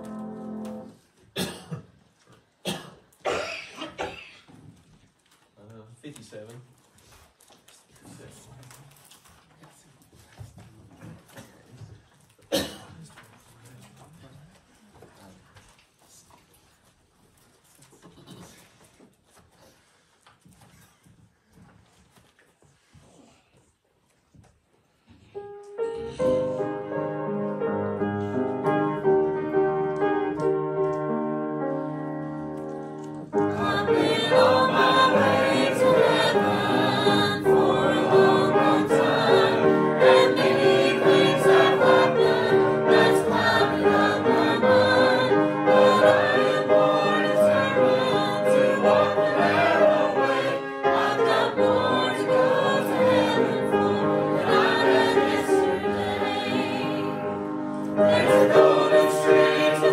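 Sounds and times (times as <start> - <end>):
voices singing: 33.4 - 57.4, 58.0 - 59.9.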